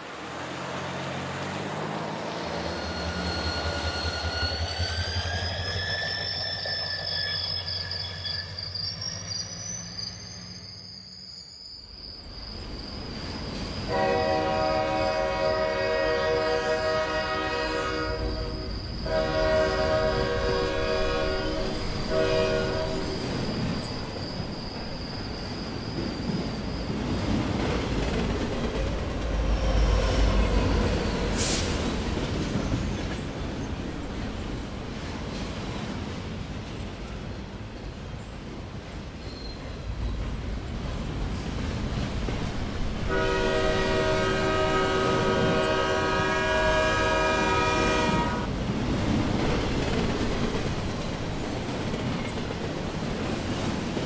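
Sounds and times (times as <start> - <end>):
diesel locomotive engine whining: 0.0 - 54.0
train rumbling: 0.0 - 54.0
locomotive horn blasts: 13.9 - 23.2, 43.1 - 48.5.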